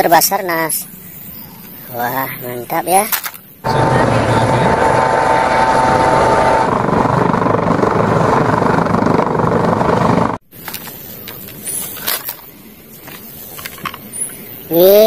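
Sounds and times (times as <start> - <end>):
helicopter hovering: 3.6 - 10.4.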